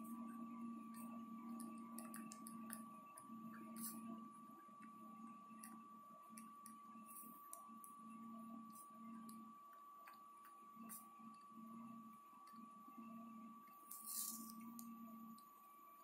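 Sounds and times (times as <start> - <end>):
steady low hum: 0.0 - 16.0
thin high whine: 0.0 - 16.0
pen scratching on paper: 3.5 - 4.0, 13.9 - 14.6.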